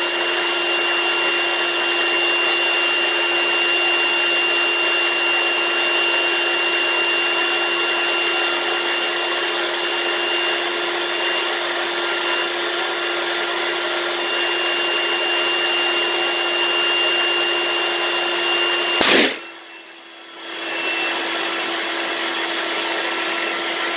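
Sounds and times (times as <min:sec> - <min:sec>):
electric balloon pump humming: 0:00.0 - 0:23.9
balloon bursting pop: 0:19.0 - 0:19.5.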